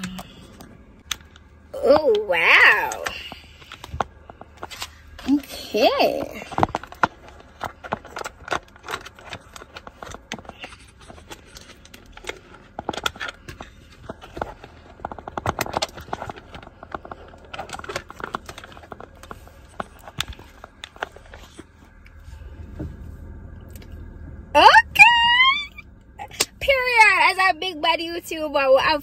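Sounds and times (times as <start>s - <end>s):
low steady hum: 0.0s - 29.0s.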